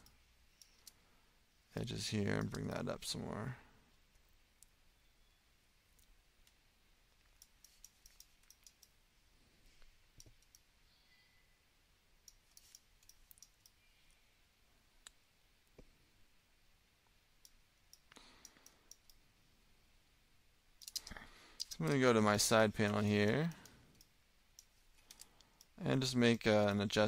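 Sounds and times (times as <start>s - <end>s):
computer mouse and keyboard clicks: 7.2s - 9.0s, 12.2s - 13.8s, 20.8s - 22.0s, 22.8s - 25.8s.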